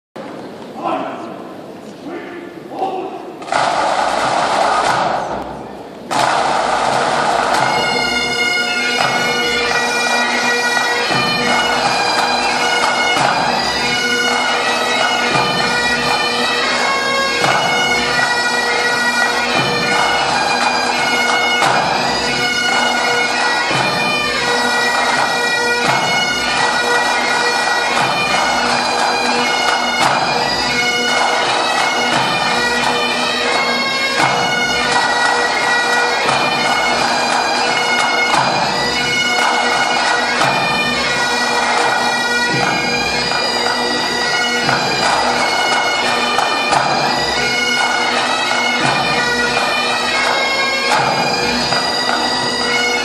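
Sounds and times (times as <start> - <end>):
bagpipes playing a tune: 6.5 - 53.0.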